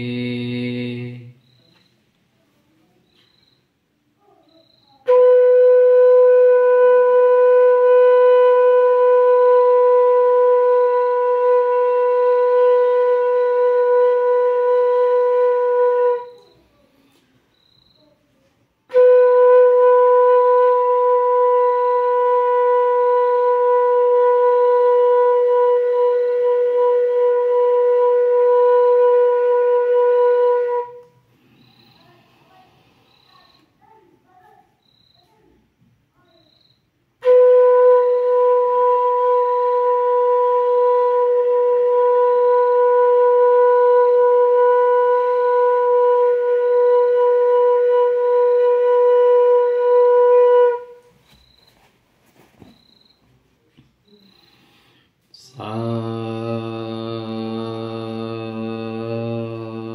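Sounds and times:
bamboo flute holding a note: 4.9 - 16.6, 18.9 - 31.9, 37.2 - 51.6.

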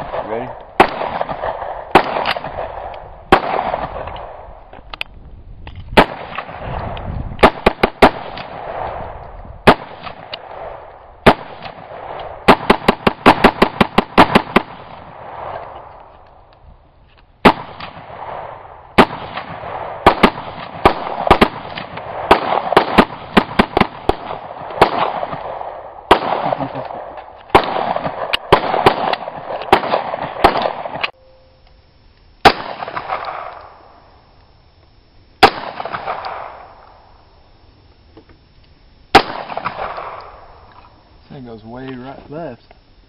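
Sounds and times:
rapid rifle fire: 0.0 - 4.4, 6.0 - 15.8, 17.4 - 31.1, 32.4 - 33.5, 35.4 - 36.7, 39.1 - 40.4
pistol shots: 0.0 - 4.5, 6.0 - 15.9, 17.4 - 31.2, 32.4 - 33.7, 35.4 - 36.8, 39.1 - 40.4.

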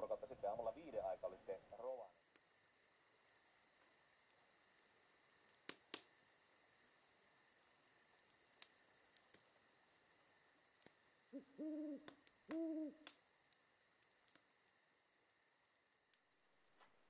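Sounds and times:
faint clicks: 0.8 - 6.4, 7.0 - 16.9
low hooting calls: 11.3 - 13.1.

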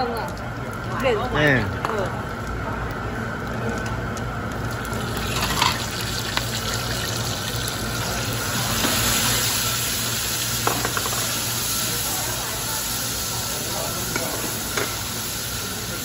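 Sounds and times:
vegetables sizzling in hot oil: 4.3 - 16.0.

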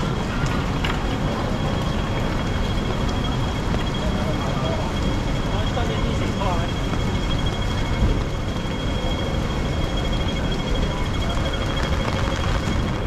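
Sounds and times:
traffic rumble: 0.0 - 13.0
wet street hiss: 10.8 - 13.0.

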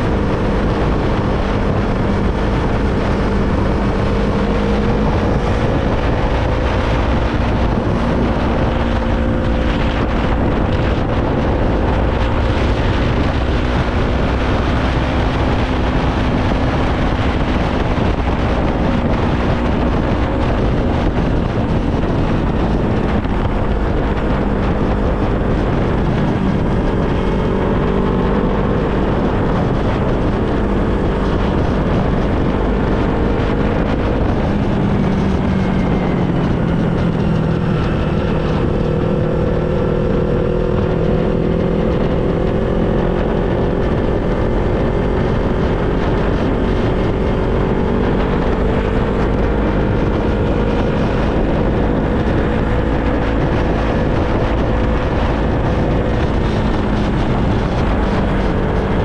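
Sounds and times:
motorcycle engine running: 0.0 - 59.0
wind noise on microphone: 0.0 - 59.0.

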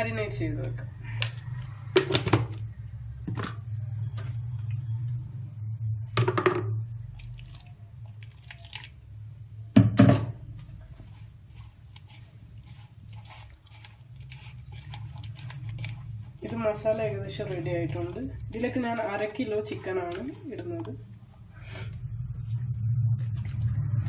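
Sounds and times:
steady low hum: 0.0 - 24.0
hand squishing wet marinade: 7.1 - 9.1, 10.5 - 21.5.

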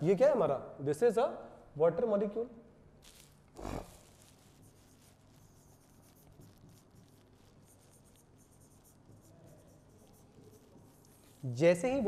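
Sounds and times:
stylus scratching on touchscreen: 3.1 - 12.0.

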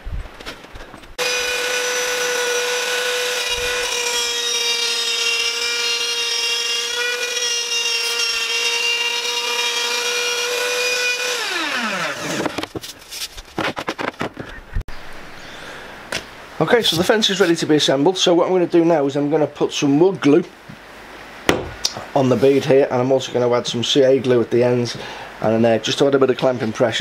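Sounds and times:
router spinning down: 1.2 - 12.6
wood router running: 1.2 - 12.6.

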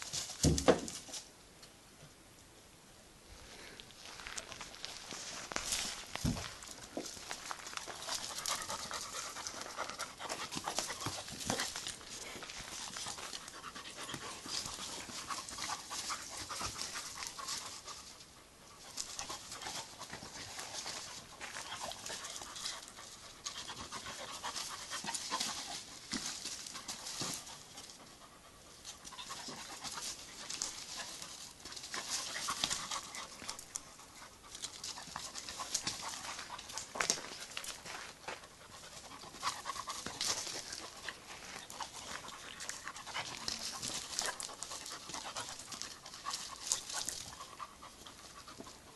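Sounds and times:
dog panting: 7.7 - 26.2, 26.8 - 48.9.

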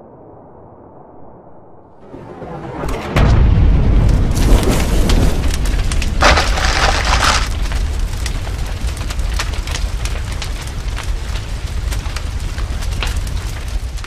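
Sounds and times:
fire crackling: 3.9 - 14.0.

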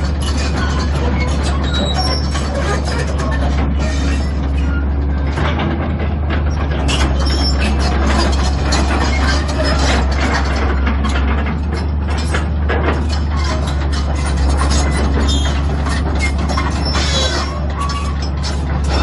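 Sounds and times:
diesel engine drone: 0.0 - 19.0
steel tracks clanking: 0.0 - 19.0.

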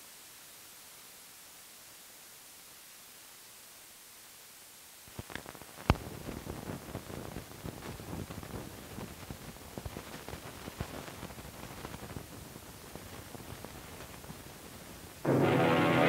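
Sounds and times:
film soundtrack hiss: 0.0 - 16.0
crackle and pops: 5.0 - 15.3.

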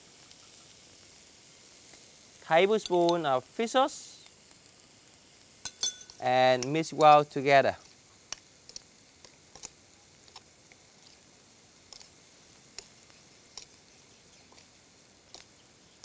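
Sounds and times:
faint steady hiss: 0.0 - 16.0
spoon tapping glass bowl: 5.7 - 6.2.

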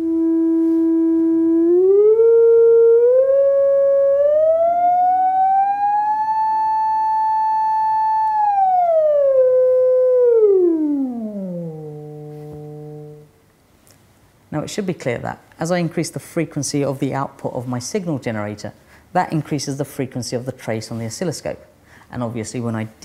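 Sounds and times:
sine wave tone sweeping pitch: 0.0 - 13.3.

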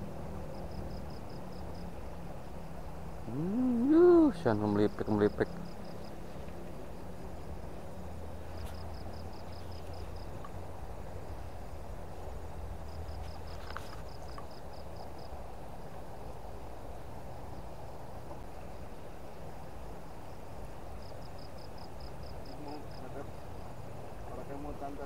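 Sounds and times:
insect calling in high pulses: 3.2 - 6.1.

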